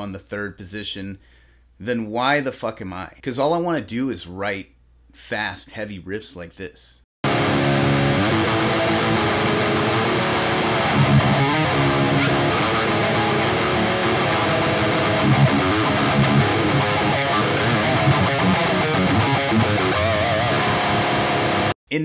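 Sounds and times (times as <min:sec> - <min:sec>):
distorted electric guitar riff: 0:07.2 - 0:21.8.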